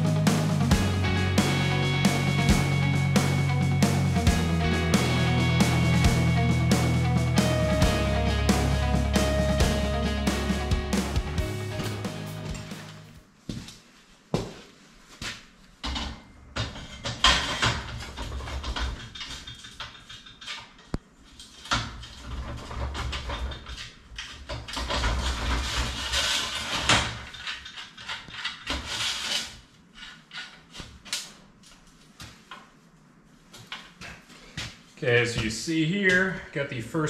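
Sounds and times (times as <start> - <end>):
metal clanks and knocks: 15.8 - 20.9
metal scraping and sliding: 21.4 - 31.0.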